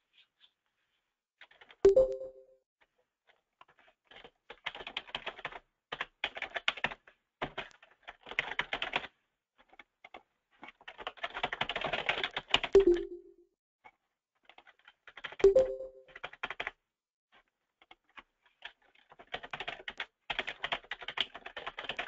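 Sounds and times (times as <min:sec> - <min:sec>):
typing on computer keyboard: 0:03.6 - 0:13.3, 0:14.4 - 0:16.8, 0:17.8 - 0:22.0.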